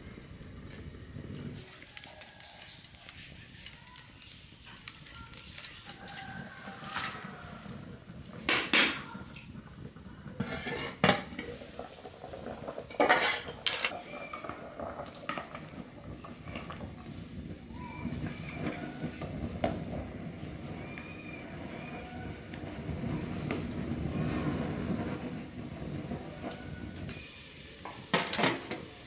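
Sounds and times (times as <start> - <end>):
metal pot and lid clanking: 8.4 - 9.1, 10.4 - 15.6, 27.8 - 28.9.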